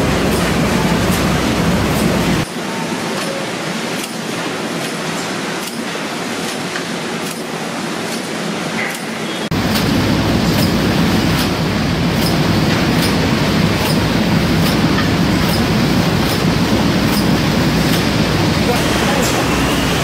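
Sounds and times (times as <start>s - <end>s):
machine mechanical rumble: 9.5s - 20.0s.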